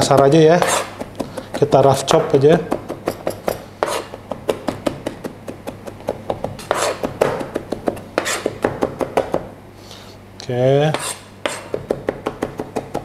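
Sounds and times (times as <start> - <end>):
knife scraping cutting board: 0.0 - 1.6, 3.1 - 4.2, 5.5 - 7.5, 8.2 - 8.6, 10.9 - 11.8
knife tapping on cutting board: 4.2 - 9.5, 11.7 - 13.0.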